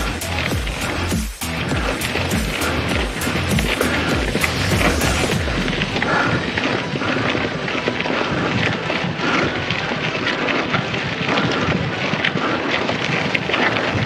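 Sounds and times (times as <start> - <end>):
bicycle tyres on dirt trail: 0.0 - 14.0
wind noise on microphone: 0.0 - 14.0
small rattles and clicks: 6.2 - 14.0.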